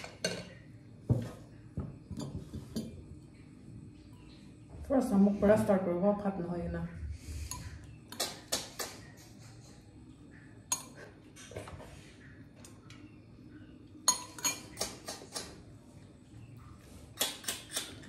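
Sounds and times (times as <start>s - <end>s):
spoon and shells clinking on glass: 14.0s - 15.2s.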